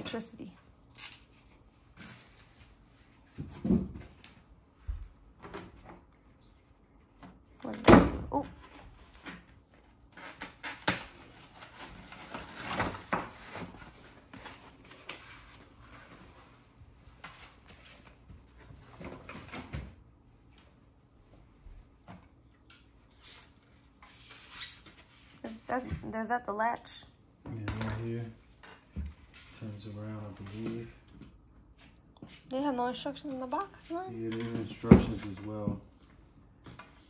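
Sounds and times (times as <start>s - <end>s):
foam wrap rustling: 8.7s - 19.5s.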